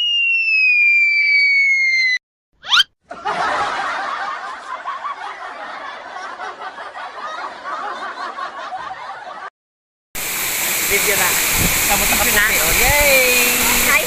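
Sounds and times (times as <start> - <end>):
rising whistle sound effect: 0.0 - 2.9
snickering and giggling laughter: 3.1 - 9.5.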